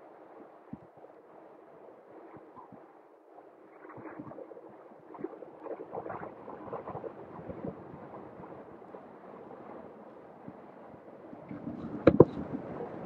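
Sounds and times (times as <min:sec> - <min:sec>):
wind buffeting microphone: 0:00.6 - 0:01.0, 0:03.7 - 0:13.0.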